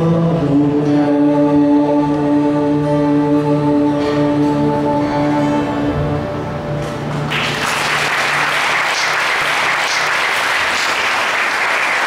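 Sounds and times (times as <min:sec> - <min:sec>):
choir holding a chord: 0:00.0 - 0:06.6
audience applause: 0:07.1 - 0:12.0.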